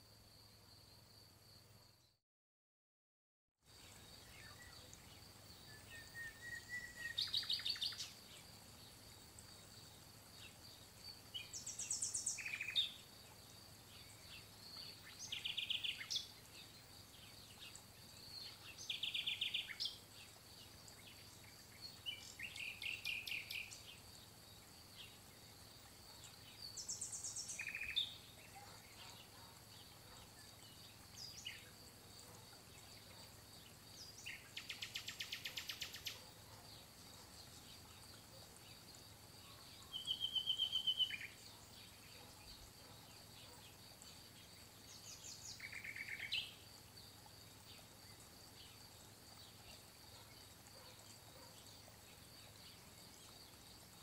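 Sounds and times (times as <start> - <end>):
songbird trilling: 5.8 - 8.1, 11.4 - 13.0, 26.8 - 28.6, 39.9 - 41.4, 45.5 - 46.5.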